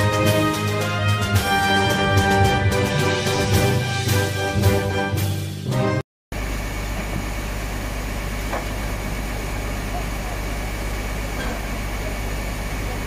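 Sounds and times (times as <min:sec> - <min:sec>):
music: 0:00.0 - 0:06.0
heavy machinery engines running: 0:06.4 - 0:13.0.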